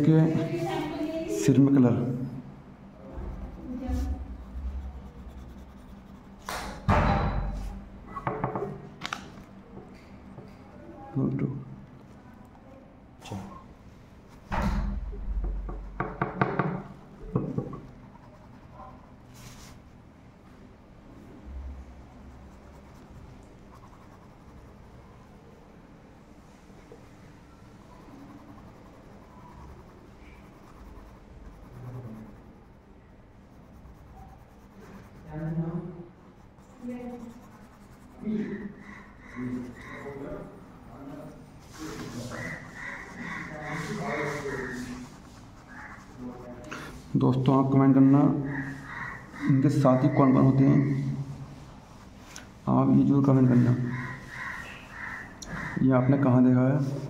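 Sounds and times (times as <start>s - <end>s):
pencil scratching on paper: 3.1s - 7.8s, 15.6s - 20.0s, 22.0s - 25.5s, 27.8s - 51.1s, 51.8s - 56.3s.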